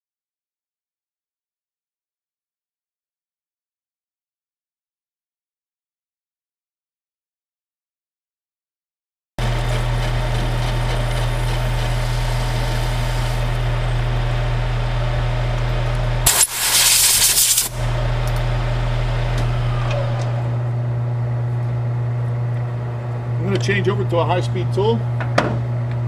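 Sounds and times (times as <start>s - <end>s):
metal lathe motor hum: 9.4s - 16.5s, 17.6s - 21.6s
lathe spindle winding down: 9.4s - 20.7s
loud burst of noise: 16.2s - 18.4s.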